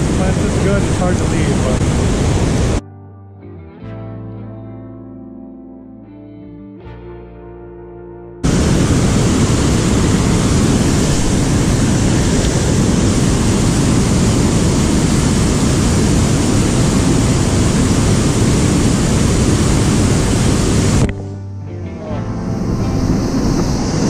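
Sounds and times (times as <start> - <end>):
river water rushing over dam: 0.0 - 2.8, 8.4 - 21.1.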